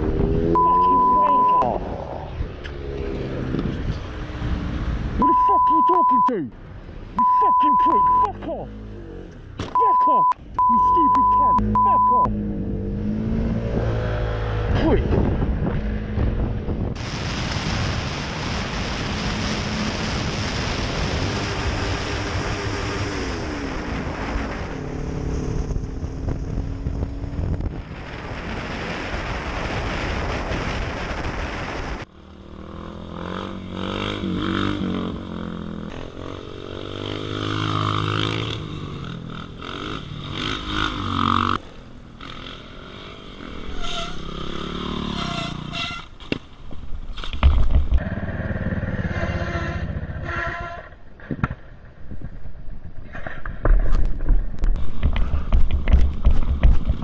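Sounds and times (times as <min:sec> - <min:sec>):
motorcycle engine revving: 0:00.0 - 0:05.6, 0:07.8 - 0:09.9, 0:10.6 - 0:17.0, 0:32.0 - 0:46.2, 0:47.3 - 0:51.3
motorcycle engine: 0:00.0 - 0:05.7, 0:06.6 - 0:17.0, 0:21.0 - 0:29.1, 0:32.0 - 0:53.4
wind rush over microphone: 0:13.6 - 0:32.1.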